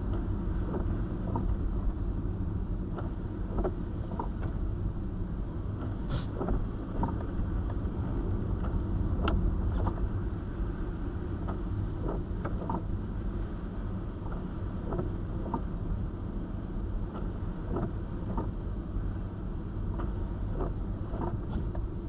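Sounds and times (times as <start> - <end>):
car road and engine rumble: 0.0 - 22.0
windshield wiper sweep: 0.1 - 1.9, 5.8 - 16.0, 17.0 - 22.0
light ticks: 8.6 - 10.0, 19.9 - 21.9.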